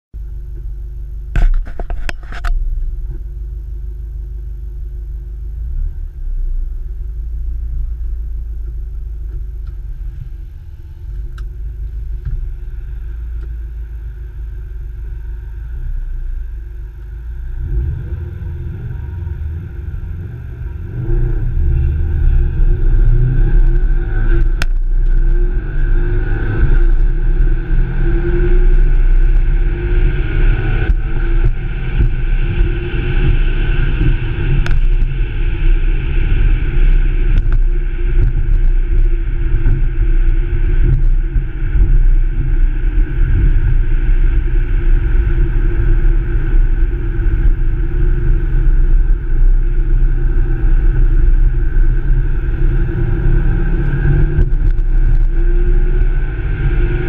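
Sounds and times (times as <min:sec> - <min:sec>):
car engine idling and revving: 0:00.2 - 0:57.0.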